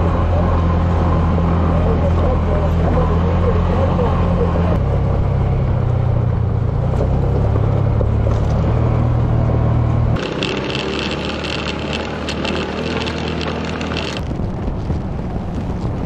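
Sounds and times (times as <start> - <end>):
off-road vehicle engine running: 0.0 - 16.0.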